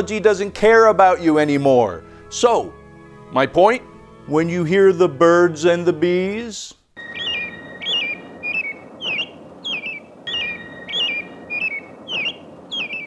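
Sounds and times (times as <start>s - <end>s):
film soundtrack hiss: 0.0s - 13.0s
songbird chirping: 0.0s - 13.0s
faint steady high tone: 7.0s - 13.0s.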